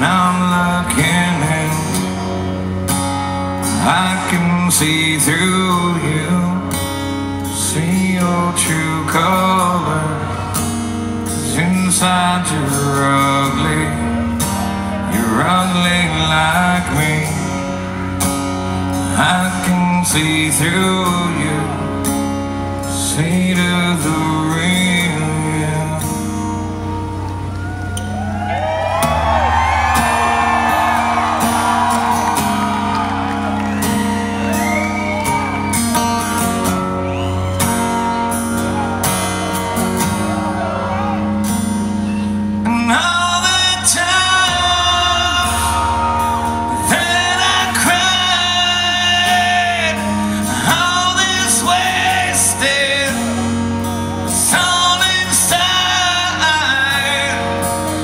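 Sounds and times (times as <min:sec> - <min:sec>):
acoustic guitar music: 0:00.0 - 0:58.0
crowd shouting and whooping: 0:26.9 - 0:58.0
person singing: 0:42.1 - 0:58.0.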